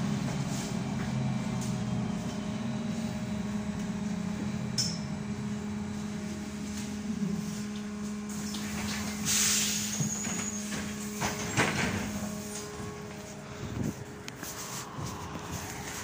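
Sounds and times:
trolleybus electric hum: 0.0 - 16.0
vehicle running noise: 0.0 - 16.0
brief high hiss: 9.2 - 10.0.

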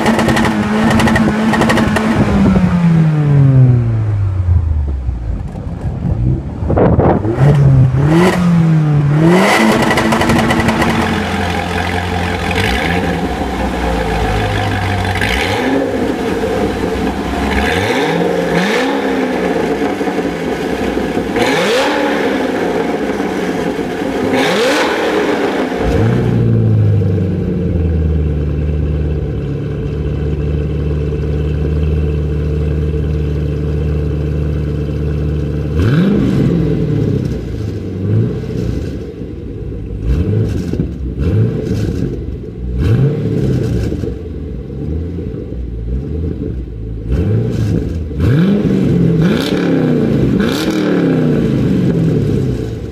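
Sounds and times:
car engine idling: 0.0 - 24.4, 25.2 - 41.3
sports car engine revving: 0.0 - 52.9.

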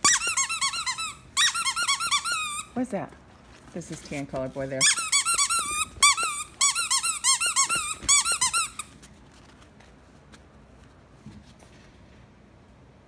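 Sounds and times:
puppy squealing: 0.0 - 2.8, 4.8 - 8.9.

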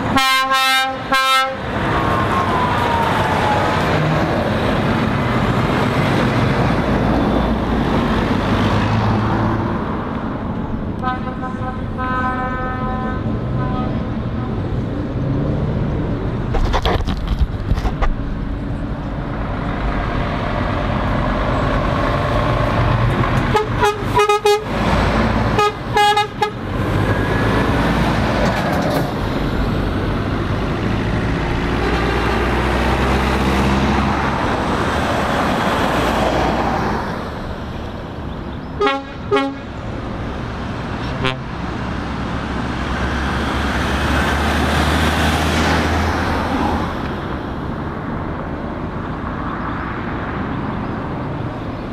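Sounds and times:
traffic on a roundabout: 0.0 - 51.9
lorry horn tooting: 0.1 - 1.6, 11.0 - 14.6, 23.5 - 24.7, 25.6 - 26.6, 38.8 - 39.7, 41.1 - 41.5.

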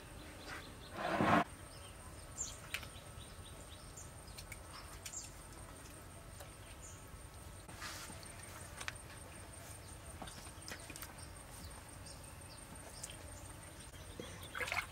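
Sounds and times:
birds chirping: 9.6 - 14.9.

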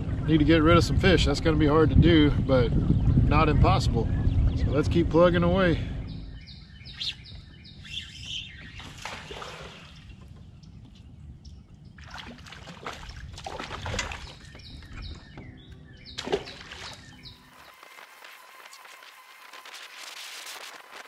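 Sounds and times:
bird chirps: 5.8 - 12.0, 13.9 - 18.2
water sloshing against a kayak: 8.2 - 17.5
splashes and knocks: 8.8 - 10.3, 12.0 - 15.0, 16.2 - 17.2.

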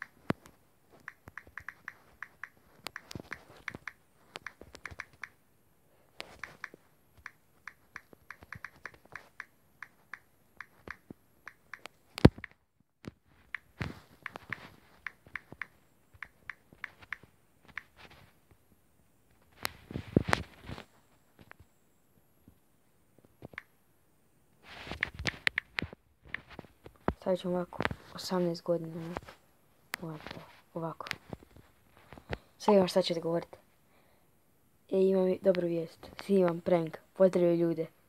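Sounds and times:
typing taps on phone screen: 0.0 - 5.4, 6.2 - 12.6, 13.5 - 17.9.

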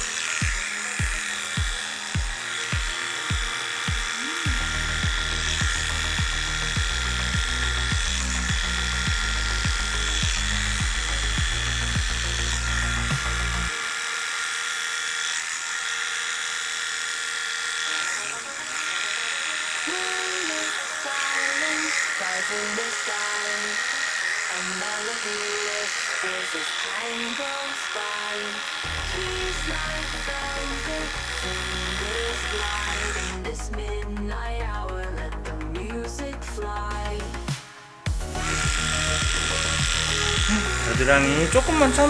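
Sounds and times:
music with bass beat: 0.0 - 13.7, 28.9 - 42.0
electric clipper buzzing: 0.0 - 42.0.

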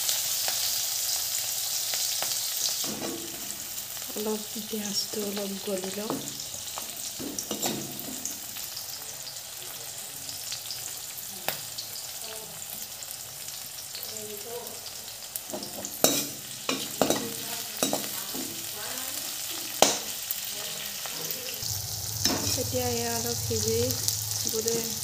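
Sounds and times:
vegetables sizzling in oil: 0.0 - 25.0
steel spoon knocking against a pan: 7.2 - 8.3, 15.5 - 18.6, 22.2 - 22.6.

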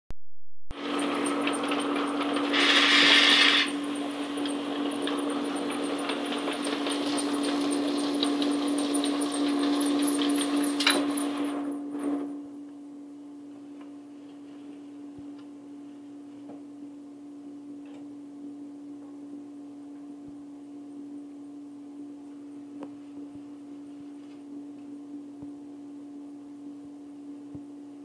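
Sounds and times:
steady machine hum: 0.7 - 28.0
conveyor rollers rolling: 0.8 - 12.3
brief loud hiss: 2.5 - 3.7.

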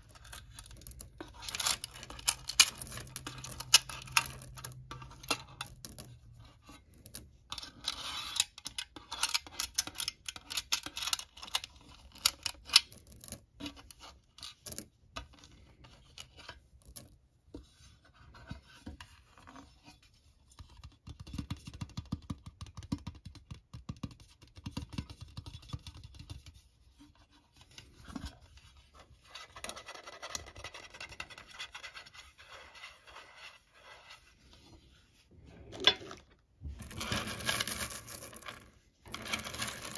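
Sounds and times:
pebbles scraping metal tin: 35.7 - 39.9.

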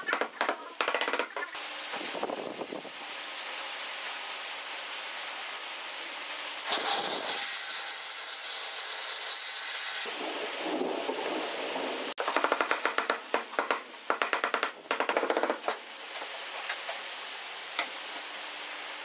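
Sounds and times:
wooden mallet tapping on board: 0.1 - 1.4, 12.4 - 15.8.

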